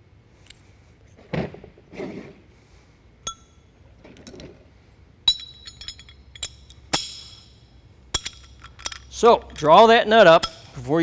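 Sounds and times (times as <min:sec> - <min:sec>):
steel tools clinking: 0:05.3 - 0:11.0.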